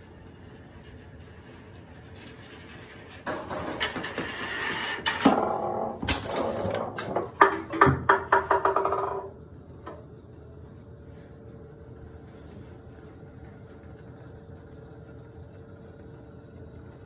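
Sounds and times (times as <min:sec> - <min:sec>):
golf balls rolling down ramps: 0:02.3 - 0:10.0
balls knocking and clattering: 0:02.4 - 0:10.0.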